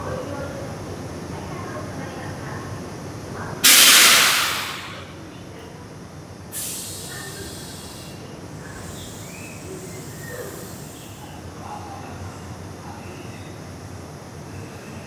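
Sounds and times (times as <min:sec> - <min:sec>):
air brakes hissing: 0:03.6 - 0:05.1, 0:06.5 - 0:11.4.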